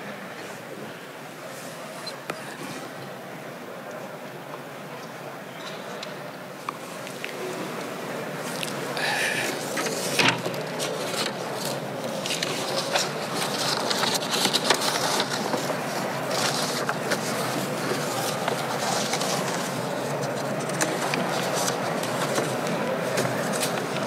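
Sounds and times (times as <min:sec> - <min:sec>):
steady hubbub: 0:06.0 - 0:24.0
scattered clicks and knocks: 0:09.8 - 0:24.0.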